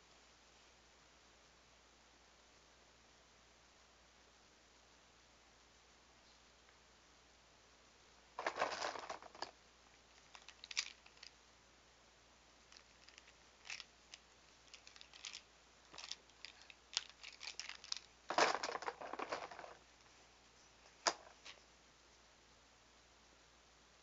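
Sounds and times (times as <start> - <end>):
rustling: 8.3 - 11.4, 12.6 - 22.3.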